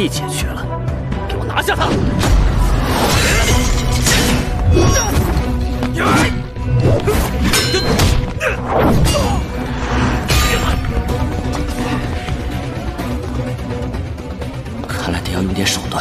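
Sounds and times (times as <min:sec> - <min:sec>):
background music: 0:00.0 - 0:16.0.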